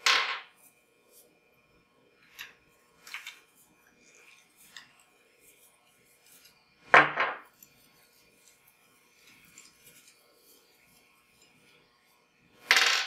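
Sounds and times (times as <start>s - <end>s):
faint rubbing and handling: 2.4s - 6.7s, 7.5s - 12.2s.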